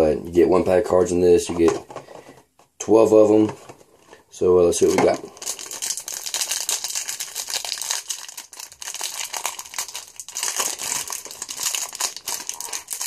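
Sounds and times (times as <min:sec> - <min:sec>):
wrapper crinkling and tearing: 0:05.1 - 0:13.0.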